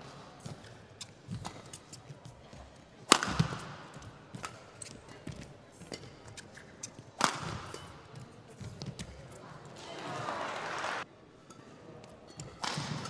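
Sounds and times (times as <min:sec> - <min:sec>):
badminton racket hitting shuttlecock: 0:03.0 - 0:09.2.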